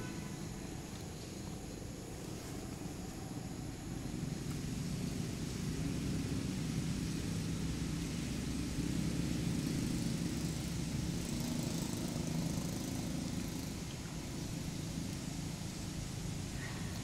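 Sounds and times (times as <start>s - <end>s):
engine humming: 0.0s - 17.0s.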